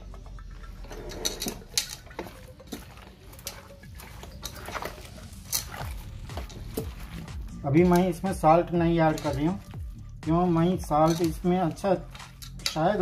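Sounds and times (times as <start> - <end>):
hand mixing meat and onions: 0.0 - 13.0.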